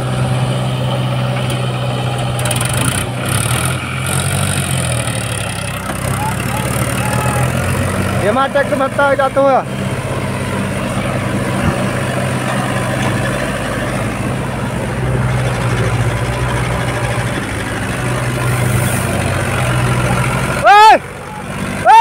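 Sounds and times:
diesel engines running: 0:00.0 - 0:22.0.

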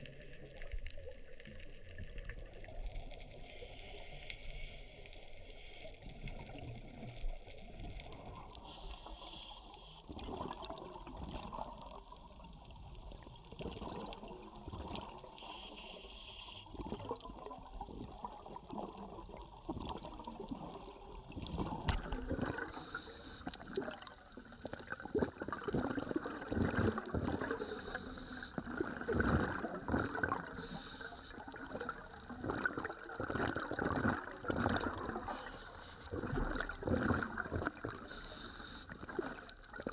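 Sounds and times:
muffled underwater noise: 0:00.0 - 0:39.9
underwater crackles and knocks: 0:10.1 - 0:15.4, 0:16.7 - 0:39.9.

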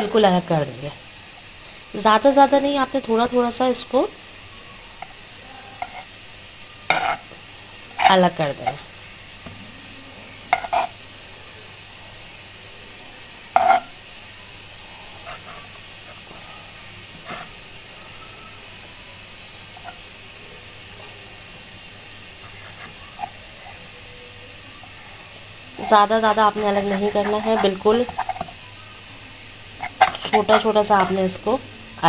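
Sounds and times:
steady hiss: 0:00.0 - 0:32.0
knife cutting bread: 0:29.8 - 0:31.2.

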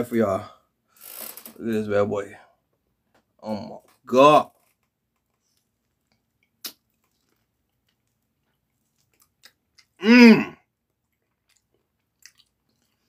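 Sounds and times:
man humming: 0:10.0 - 0:10.6.

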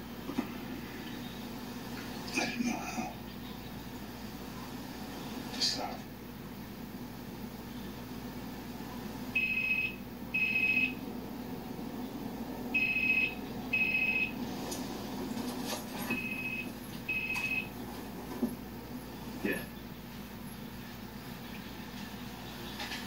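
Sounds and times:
telephone ringing: 0:09.4 - 0:11.0, 0:12.8 - 0:14.4, 0:15.6 - 0:17.7.

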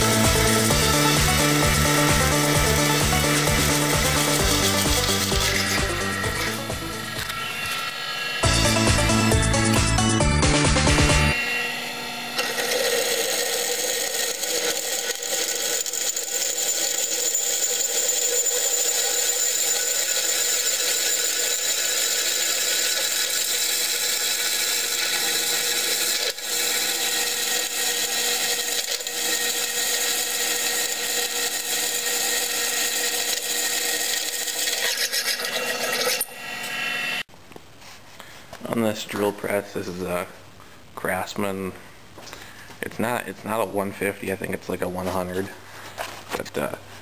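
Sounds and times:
drill press drilling steel: 0:00.0 - 0:10.0, 0:10.9 - 0:37.3.

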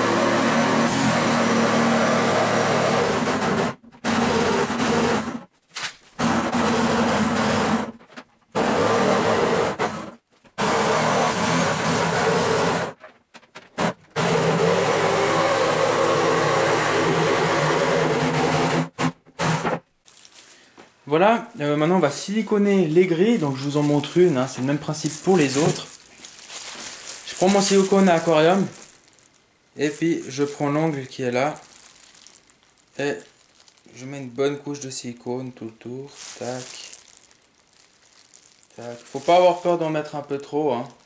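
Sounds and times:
electric jigsaw cutting board: 0:00.0 - 0:05.5, 0:06.2 - 0:13.0, 0:13.8 - 0:19.8, 0:25.0 - 0:25.9.

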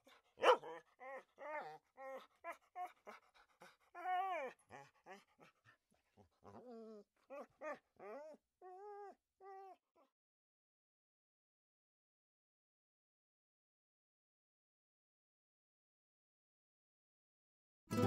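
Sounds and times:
dog whimpering and whining: 0:00.4 - 0:05.5, 0:06.4 - 0:09.8.

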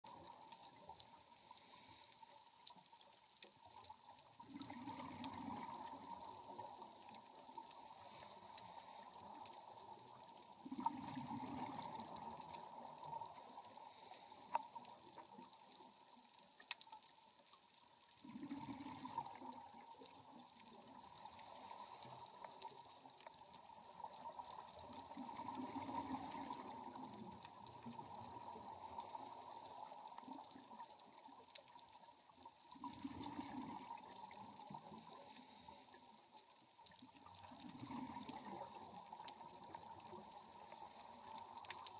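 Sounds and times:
underwater bubbles gurgling: 0:00.0 - 0:41.9.

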